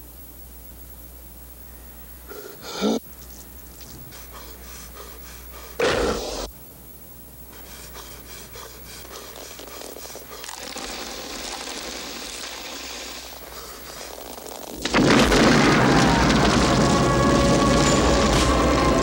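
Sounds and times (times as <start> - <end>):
steady hiss: 0.0 - 15.5
man breathing heavily: 3.8 - 6.5, 7.5 - 11.3, 13.4 - 14.7.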